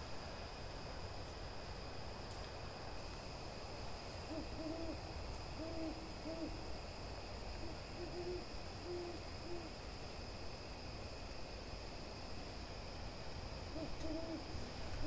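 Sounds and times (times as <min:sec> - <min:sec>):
owl hooting: 0:04.3 - 0:05.0, 0:05.6 - 0:06.6, 0:07.6 - 0:09.7, 0:13.7 - 0:14.6.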